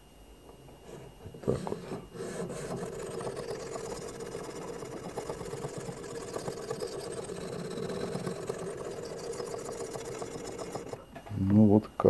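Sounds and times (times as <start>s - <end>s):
sharpening stone rasping on steel: 1.8s - 11.0s.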